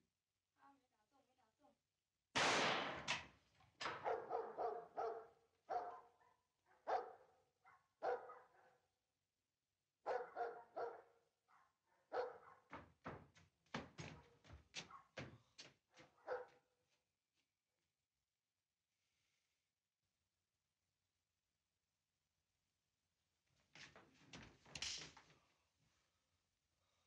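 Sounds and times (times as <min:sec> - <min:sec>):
dog barking sharply: 0:03.9 - 0:08.8, 0:10.1 - 0:12.8, 0:16.2 - 0:16.6.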